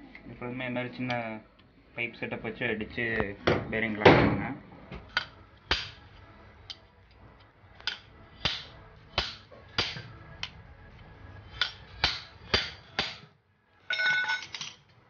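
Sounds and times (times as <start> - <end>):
metallic knocks of pipe hammering: 5.0 - 6.0, 7.8 - 10.5, 11.5 - 13.3.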